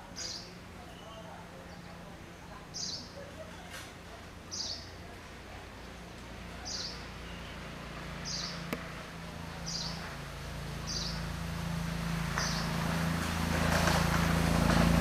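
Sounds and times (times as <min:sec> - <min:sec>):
bird chirping: 0:00.0 - 0:03.3, 0:04.5 - 0:05.0, 0:06.6 - 0:08.8, 0:09.6 - 0:10.1, 0:10.8 - 0:11.3, 0:12.4 - 0:12.8.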